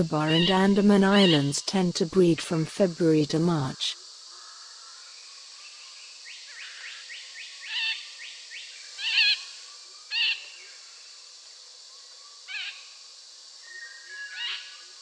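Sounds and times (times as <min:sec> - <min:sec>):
high background hiss: 0:00.0 - 0:15.0.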